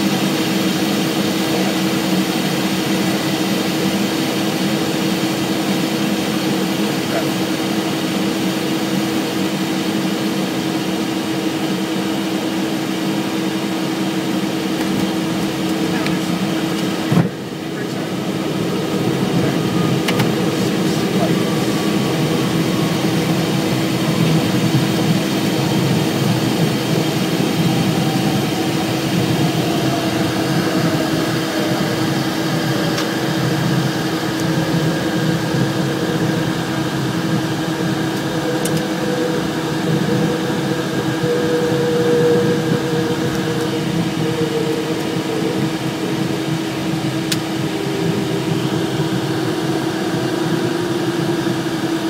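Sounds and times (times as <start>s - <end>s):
steady mechanical cabin hum: 0.0s - 52.0s.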